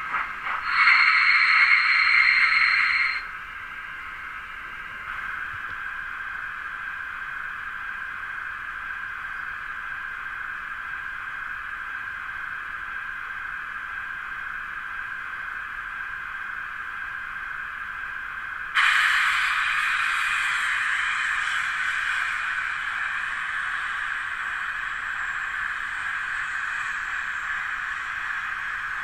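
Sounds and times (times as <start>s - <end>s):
steam hiss from small loudspeaker: 0.0s - 3.4s, 18.7s - 29.0s.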